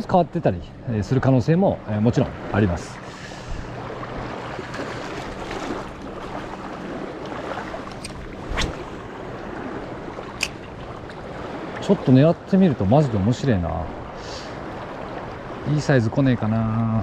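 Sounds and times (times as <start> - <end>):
small waves lapping on pebbles: 2.9 - 12.0.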